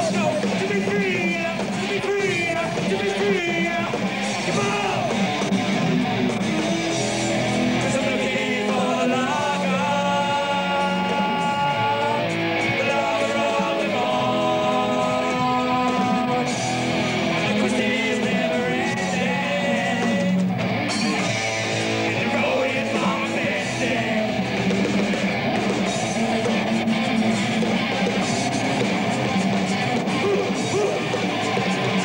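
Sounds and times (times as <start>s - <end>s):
man singing: 0.0s - 5.2s, 7.8s - 16.6s, 17.3s - 20.6s, 22.0s - 24.8s, 25.8s - 27.6s, 30.1s - 31.2s
electric guitar: 0.0s - 32.0s
rock band playing: 0.0s - 32.0s.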